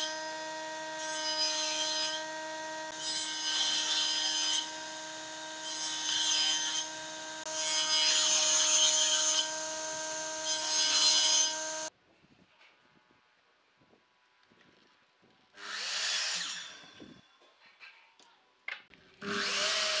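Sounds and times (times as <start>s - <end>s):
table saw humming: 0.0s - 11.9s.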